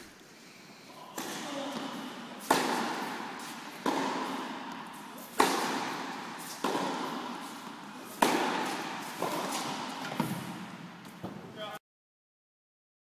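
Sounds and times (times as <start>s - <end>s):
racket striking tennis ball: 1.1s - 11.4s.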